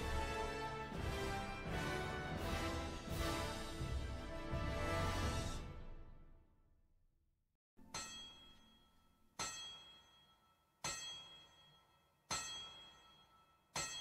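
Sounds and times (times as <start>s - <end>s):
bell-like metallic clang: 7.8s - 14.0s.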